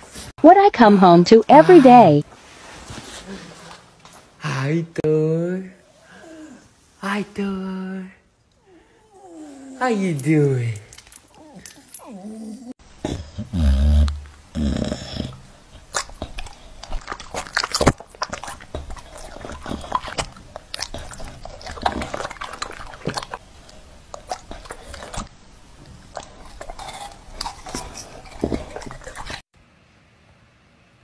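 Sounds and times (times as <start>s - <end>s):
dog chewing and lip-smacking: 15.2s - 29.4s.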